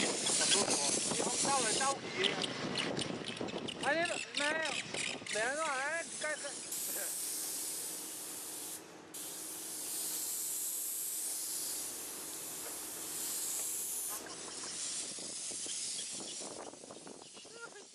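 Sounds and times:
paint spray gun hissing: 0:00.0 - 0:02.0, 0:05.5 - 0:17.9.

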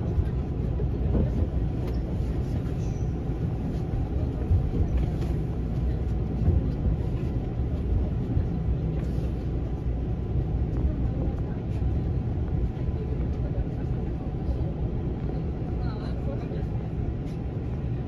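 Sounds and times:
train running low rumble: 0:00.0 - 0:18.0.

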